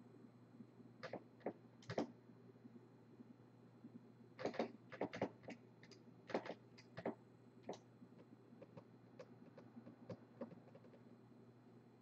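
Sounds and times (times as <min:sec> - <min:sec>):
faint clicks and taps: 0:03.8 - 0:11.1.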